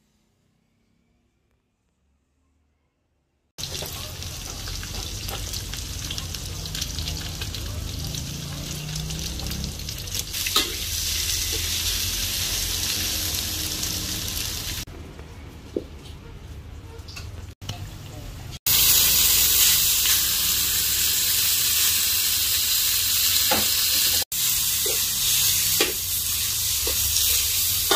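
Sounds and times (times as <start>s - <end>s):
food sizzling in hot oil: 3.6s - 14.9s, 18.7s - 27.9s.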